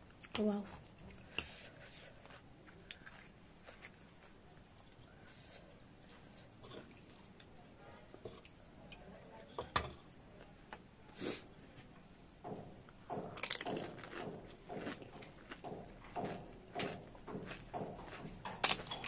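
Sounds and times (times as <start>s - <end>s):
wet crunchy chewing: 0.2s - 5.0s, 13.3s - 19.0s.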